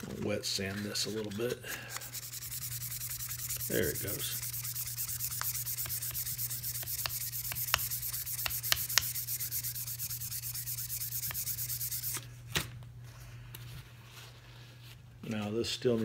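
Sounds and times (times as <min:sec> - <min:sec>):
sandpaper rubbing on steel blade: 0:00.4 - 0:12.2.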